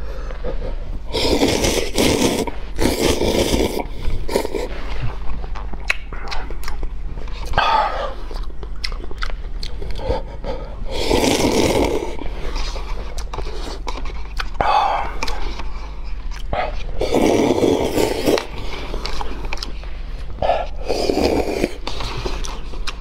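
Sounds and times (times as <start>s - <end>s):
slurping noodles: 1.1s - 4.8s, 10.9s - 13.8s, 16.9s - 19.4s, 20.8s - 22.7s
chewing and mouth clicks: 2.0s - 10.4s, 12.6s - 23.0s.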